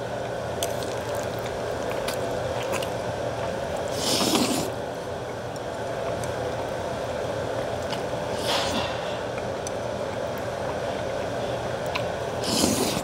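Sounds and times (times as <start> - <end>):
background hum: 0.0 - 13.0
person slurping noodles: 3.9 - 4.8, 12.4 - 13.0.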